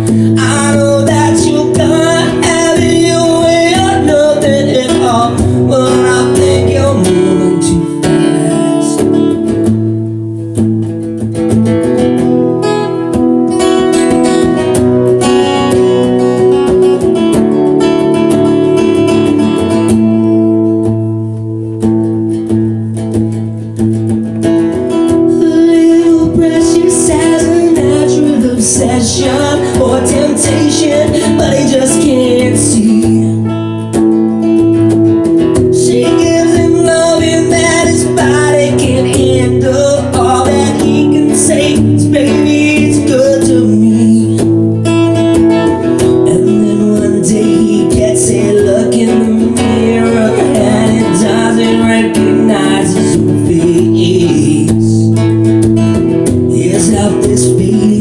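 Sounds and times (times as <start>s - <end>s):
acoustic guitar strumming: 0.0s - 58.0s.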